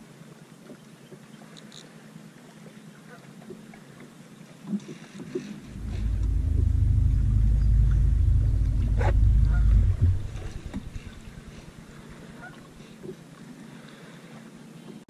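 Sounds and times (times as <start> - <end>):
electric trolling motor humming: 5.6 - 12.3.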